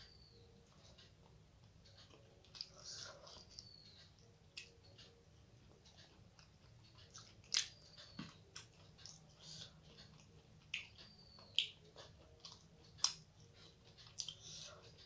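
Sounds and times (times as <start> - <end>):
person chewing food: 2.0 - 4.8, 5.7 - 15.0.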